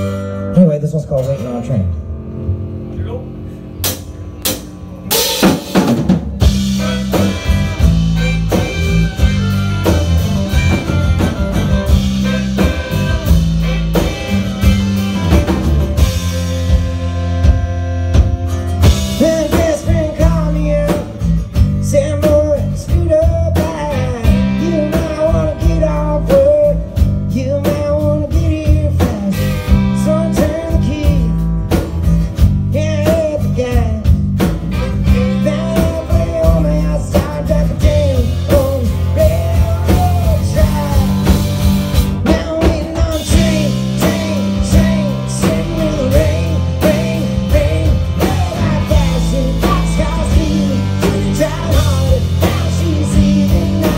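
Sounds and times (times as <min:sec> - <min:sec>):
live rock band playing: 0:00.0 - 0:53.9
man singing lead: 0:18.8 - 0:31.9, 0:32.6 - 0:53.9.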